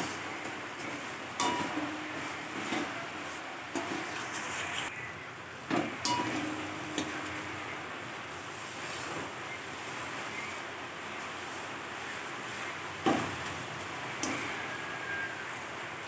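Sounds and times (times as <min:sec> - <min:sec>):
paste sizzling in a wok: 0:00.0 - 0:04.9
spatula scraping and knocking pan: 0:00.0 - 0:04.9, 0:05.7 - 0:07.7.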